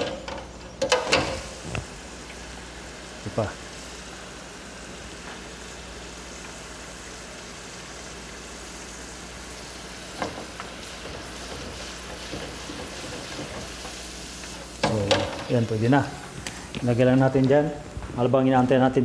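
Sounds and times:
vegetables deep-frying in oil: 0:00.0 - 0:17.6.

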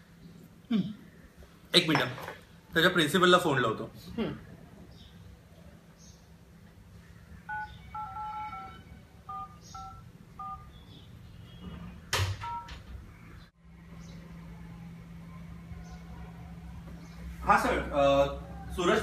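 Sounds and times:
phone keypad beeps: 0:07.5 - 0:10.7.

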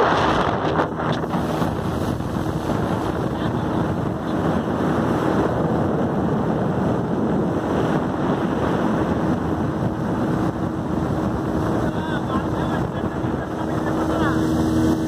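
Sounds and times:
hull rushing through water: 0:00.0 - 0:15.0
speedboat engine hum: 0:00.0 - 0:15.0
wind buffeting microphone: 0:00.0 - 0:15.0.

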